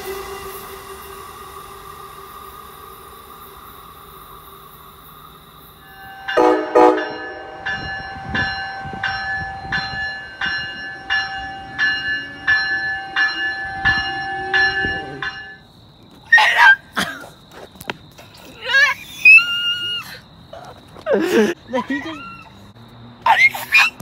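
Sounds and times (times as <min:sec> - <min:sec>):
bell ringing: 0:05.9 - 0:15.6.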